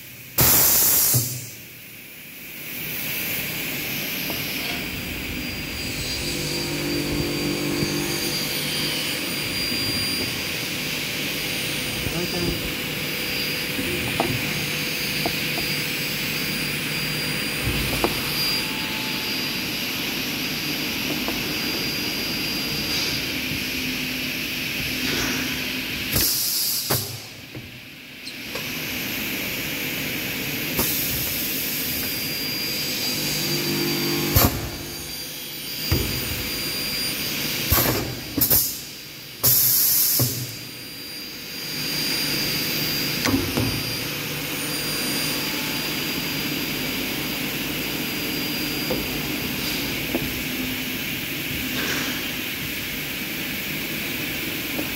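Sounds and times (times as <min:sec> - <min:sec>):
sharp hissing blasts: 0:00.4 - 0:01.4.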